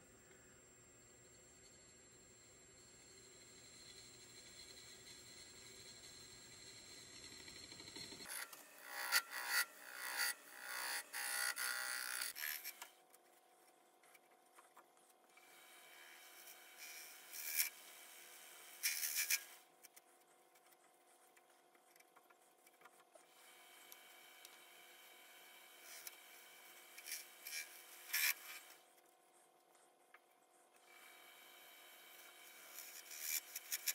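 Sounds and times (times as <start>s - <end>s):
faint steady hum: 0.0s - 8.2s
cutting tool scraping wood: 7.5s - 13.0s, 18.8s - 20.1s, 25.8s - 28.9s, 32.0s - 33.9s.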